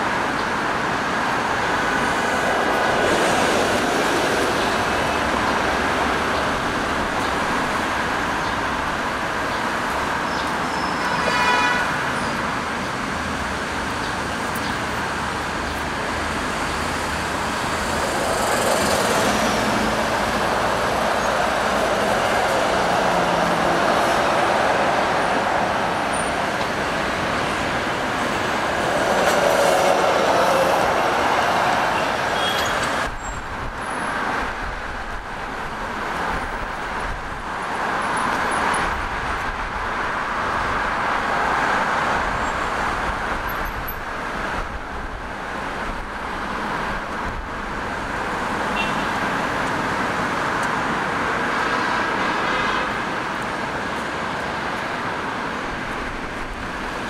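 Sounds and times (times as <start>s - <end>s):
road traffic: 0.0s - 57.0s
vehicle horn toot: 11.0s - 12.0s, 32.0s - 32.8s, 48.7s - 49.1s.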